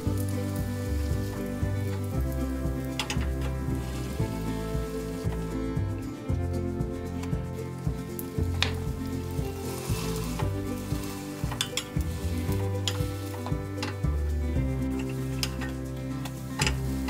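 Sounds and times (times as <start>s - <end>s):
background music: 0.0s - 17.0s
food sizzling in oil: 0.0s - 17.0s.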